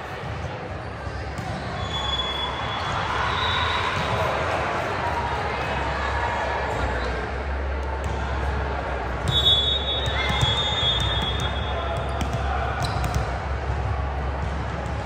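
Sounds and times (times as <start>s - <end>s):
volleyball hits and bounces: 9.1s - 15.0s
high whistle-like tone: 9.3s - 11.8s.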